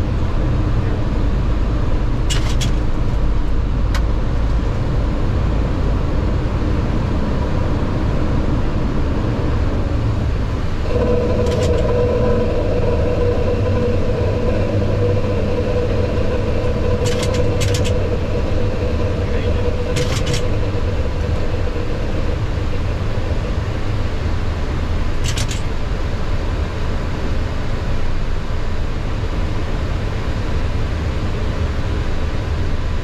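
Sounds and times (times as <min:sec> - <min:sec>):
loud rumble of jet engines: 0:00.0 - 0:33.0
steady hum: 0:00.0 - 0:33.0
rushing air: 0:05.3 - 0:26.0.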